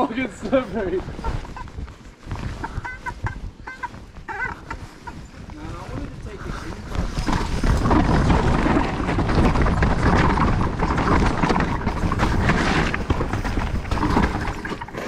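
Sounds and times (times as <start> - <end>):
bike rattling and knocking: 0.0 - 15.0
wind rumble on microphone: 0.0 - 15.0
tyre noise in mud: 6.8 - 15.0.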